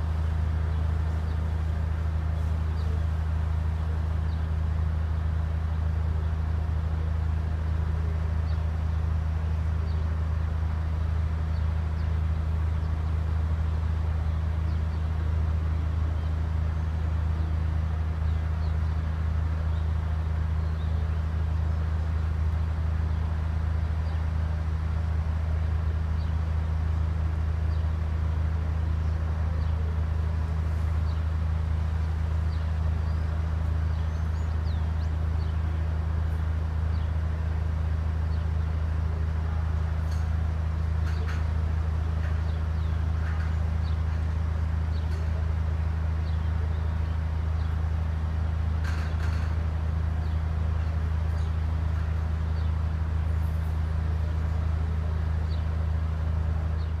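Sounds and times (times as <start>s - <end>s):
small birds chirping: 0.0s - 57.0s
steady low hum: 0.0s - 57.0s.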